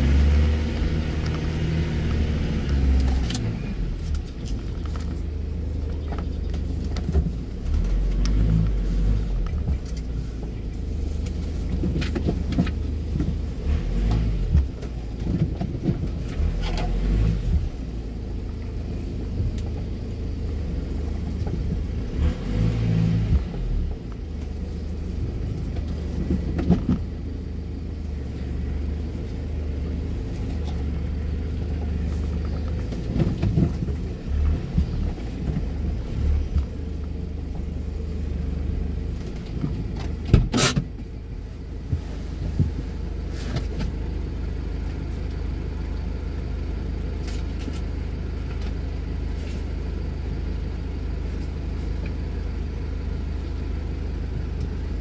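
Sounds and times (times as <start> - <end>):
irregular bumps: 0.0 - 17.9, 30.0 - 38.3
road vehicle rumble: 0.0 - 55.0.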